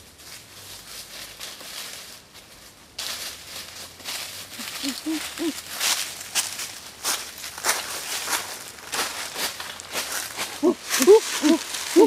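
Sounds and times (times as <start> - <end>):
footsteps rustling through dry leaves: 0.0 - 12.0
person's voice: 4.6 - 5.6, 10.6 - 12.0.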